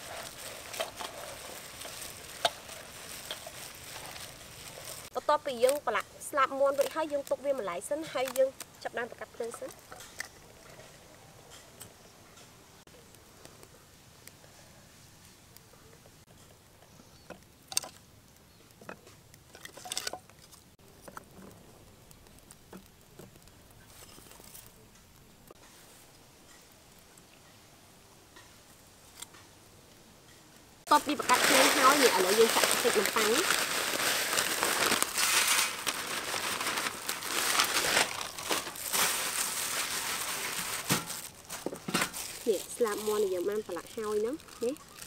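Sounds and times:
plastic packet crinkling: 0.0s - 8.8s, 30.9s - 45.0s
firewood sticks knocking: 0.2s - 5.9s, 17.3s - 18.0s, 18.8s - 21.6s.

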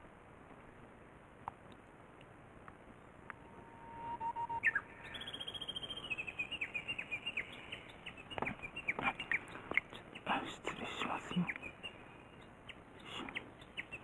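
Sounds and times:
bird trilling and chirping: 3.3s - 10.4s.

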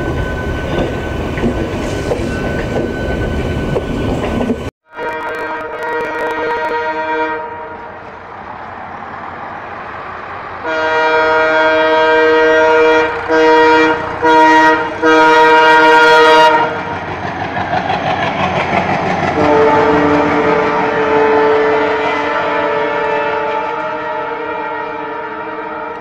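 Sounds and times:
diesel locomotives rumbling past: 0.0s - 26.0s
locomotive air horn: 4.9s - 8.2s, 10.6s - 17.0s, 19.3s - 26.0s.

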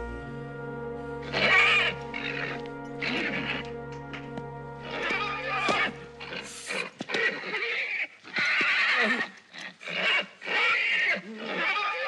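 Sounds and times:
tense background music chord: 0.0s - 7.0s
horse neighing and squealing: 1.2s - 3.7s, 4.9s - 12.0s.

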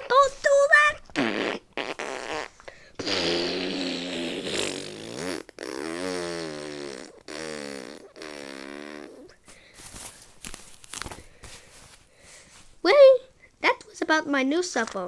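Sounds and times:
mock fart noises: 0.8s - 9.4s.

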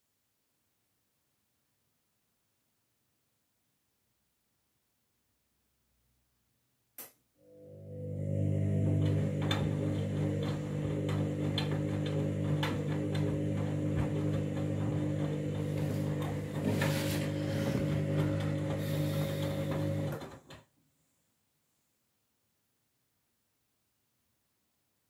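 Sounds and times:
washing machine motor hum: 7.4s - 20.6s.

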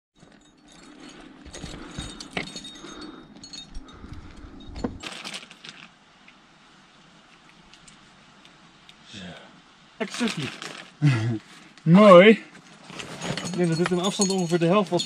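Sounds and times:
wind noise on microphone: 3.6s - 5.0s
metal gear clinking: 13.0s - 15.0s.

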